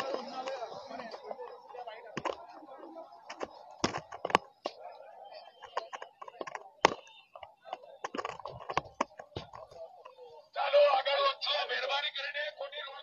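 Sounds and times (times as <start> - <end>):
faint crowd chatter: 0.0 - 13.0.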